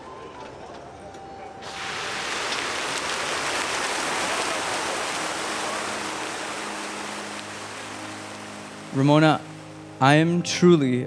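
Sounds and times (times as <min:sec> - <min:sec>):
steady rushing noise: 0:01.6 - 0:10.0.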